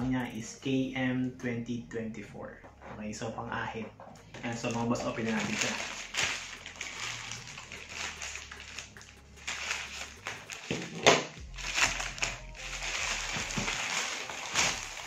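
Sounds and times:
plastic mailer crinkling and tearing: 4.3 - 15.0.

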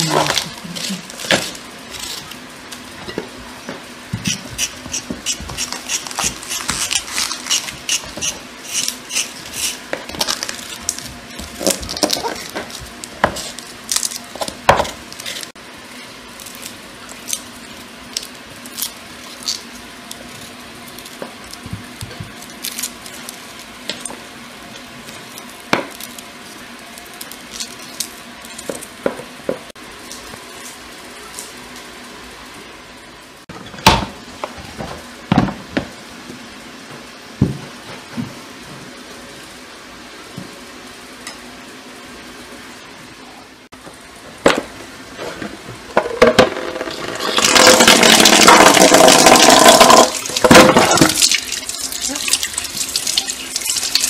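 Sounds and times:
knives scraping vegetables: 4.2 - 10.9.

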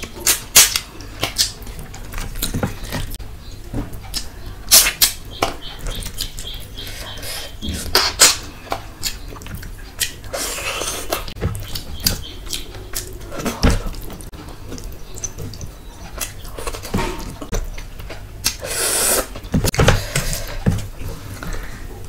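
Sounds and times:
wet chewing: 0.0 - 3.2, 3.9 - 21.8
slurping: 10.0 - 11.4, 18.5 - 19.4.

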